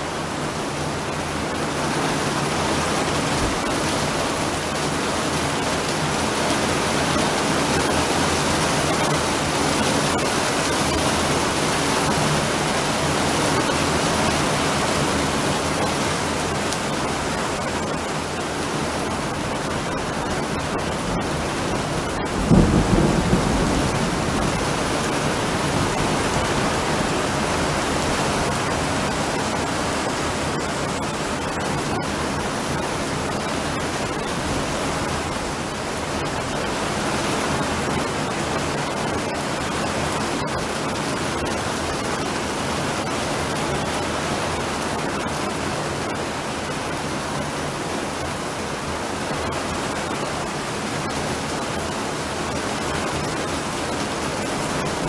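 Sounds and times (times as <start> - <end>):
heavy rain falling: 0.0 - 55.0
thunderclap and rumble: 20.5 - 29.1.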